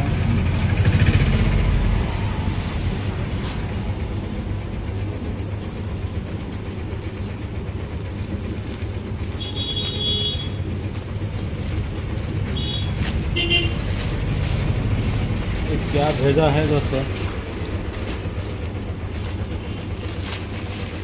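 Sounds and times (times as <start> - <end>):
low rumble of road traffic: 0.0 - 21.0
plastic bag rustling: 1.2 - 9.5, 10.6 - 21.0
vehicle horn: 9.4 - 10.7, 12.5 - 14.0.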